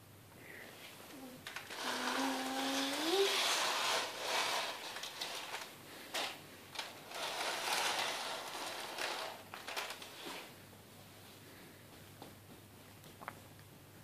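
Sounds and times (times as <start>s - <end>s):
plastic bricks scraping on wooden floor: 1.5s - 10.5s.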